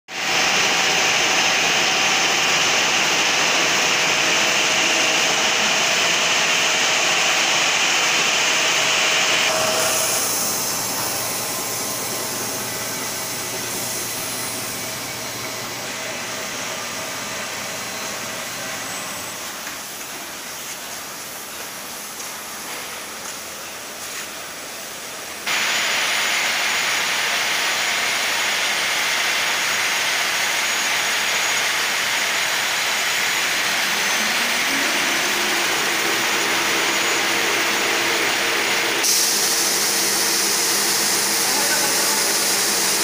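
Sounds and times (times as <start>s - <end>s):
warping machine whirring: 0.3s - 20.5s, 29.4s - 43.0s.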